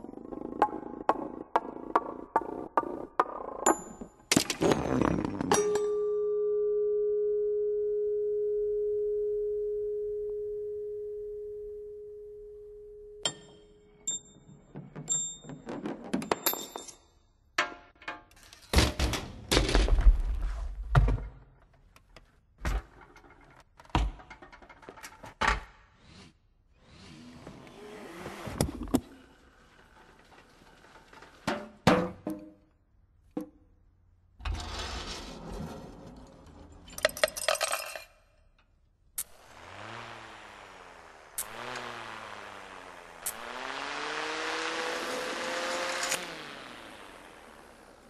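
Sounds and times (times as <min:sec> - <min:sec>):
struck metal part ringing: 0:13.2 - 0:14.4.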